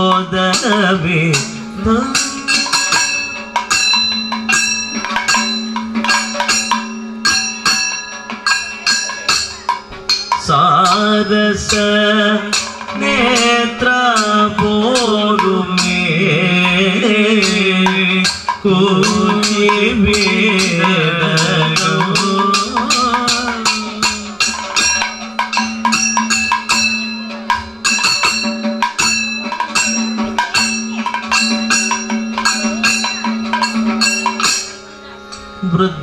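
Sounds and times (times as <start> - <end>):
drum cymbals and gong rhythm: 0.0 - 36.0
men singing: 10.5 - 24.6.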